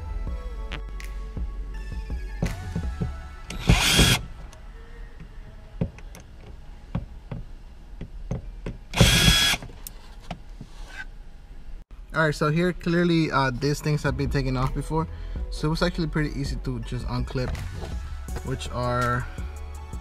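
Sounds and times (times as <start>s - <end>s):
power drill running: 3.5s - 4.3s, 9.0s - 9.6s.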